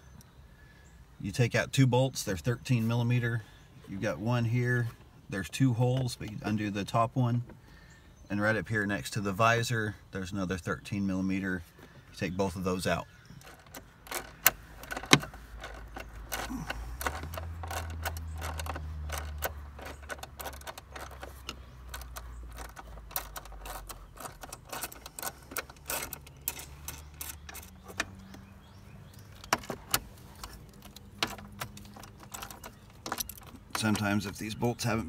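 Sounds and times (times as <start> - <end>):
hand ratchet clicking: 13.4 - 28.4.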